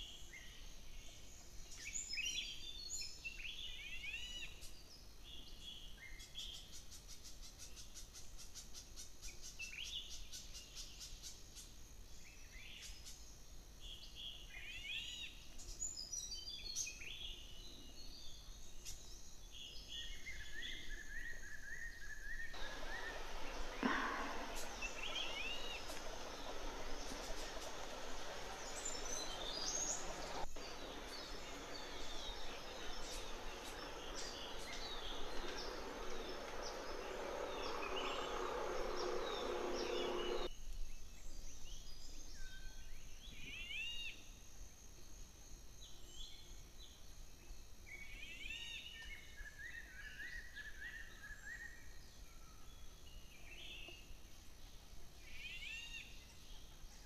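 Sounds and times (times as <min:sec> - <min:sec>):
birds chirping: 0:22.6 - 0:40.5
steady rushing noise: 0:22.6 - 0:40.5.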